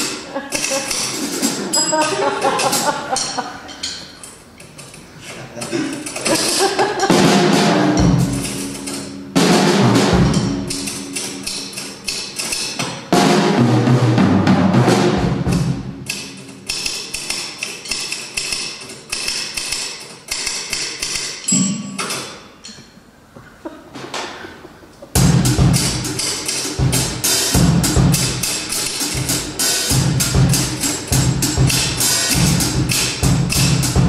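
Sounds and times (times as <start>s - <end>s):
drum kit with ringing cymbals: 0.0s - 4.2s, 6.1s - 19.5s, 20.5s - 22.7s, 25.2s - 34.0s.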